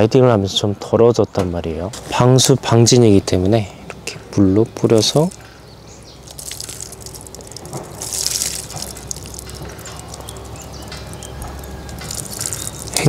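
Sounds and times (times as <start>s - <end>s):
water splashing and dripping: 5.0s - 5.4s, 6.2s - 13.0s.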